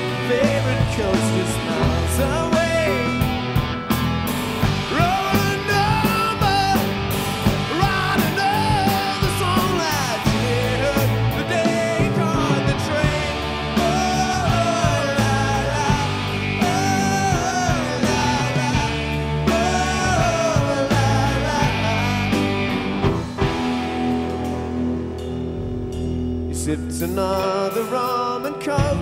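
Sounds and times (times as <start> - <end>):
man singing: 0.0 - 3.5, 4.8 - 22.8, 26.5 - 29.0
live rock band playing: 0.0 - 29.0.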